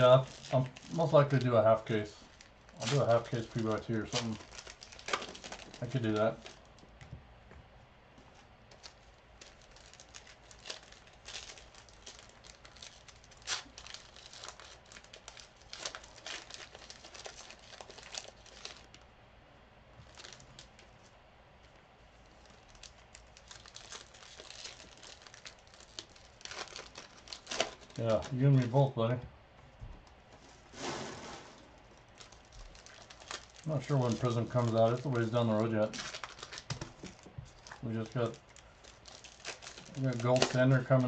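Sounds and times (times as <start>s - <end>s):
card wrappers tearing and crinkling: 0.0s - 6.8s, 8.7s - 19.1s, 20.0s - 20.9s, 22.2s - 28.9s, 30.8s - 41.0s.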